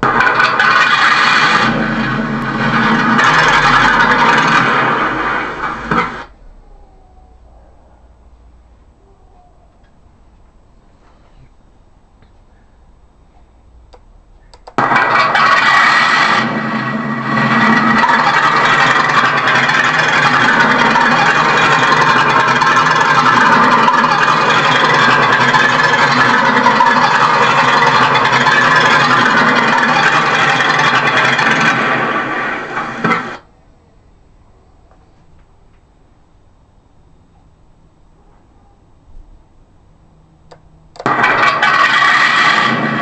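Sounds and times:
tank engine starting and running: 0:00.0 - 0:06.8, 0:13.7 - 0:33.5, 0:40.1 - 0:43.0.

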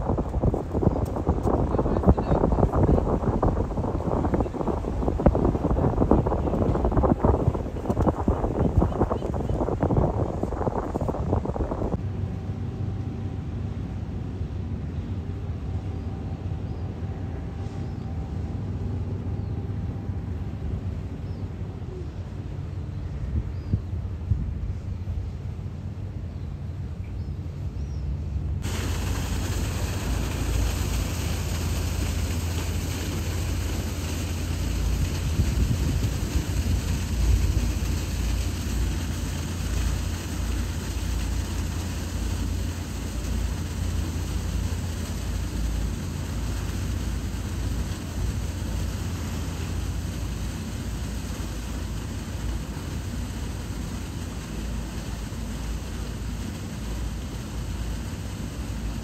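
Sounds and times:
low engine drone: 0:00.0 - 0:59.0
rushing noise: 0:28.6 - 0:59.0.

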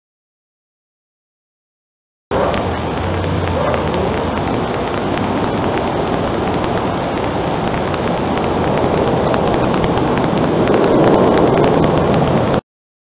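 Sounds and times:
steady rushing noise: 0:02.3 - 0:12.6.

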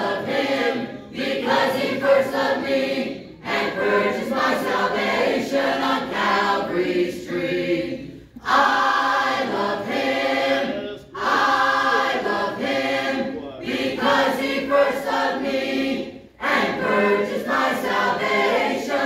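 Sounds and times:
choir singing a hymn: 0:00.0 - 0:19.0.

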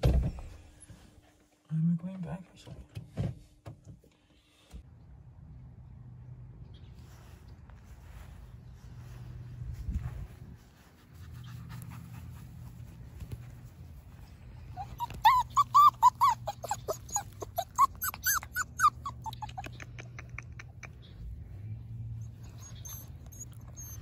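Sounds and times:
puppy whining: 0:14.6 - 0:21.0, 0:22.2 - 0:24.0.

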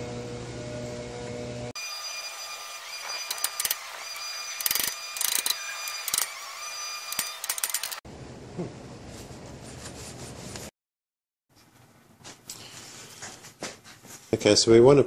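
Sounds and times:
ratchet wrench clicking: 0:03.3 - 0:03.8, 0:04.6 - 0:06.4, 0:07.1 - 0:08.0.

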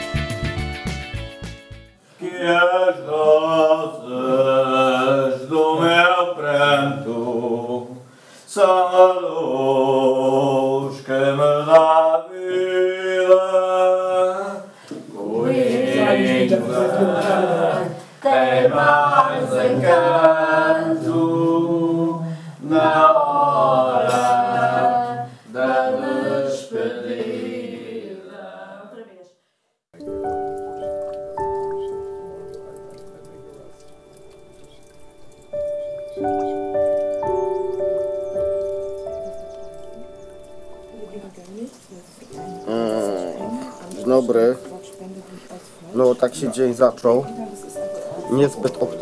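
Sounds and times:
person singing unaccompanied: 0:02.2 - 0:28.9, 0:42.3 - 0:46.5.

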